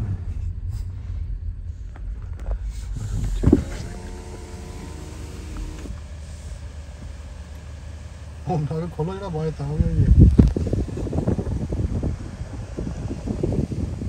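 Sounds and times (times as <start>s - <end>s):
low road rumble: 0.0s - 14.0s
power window motor whining: 2.7s - 8.4s.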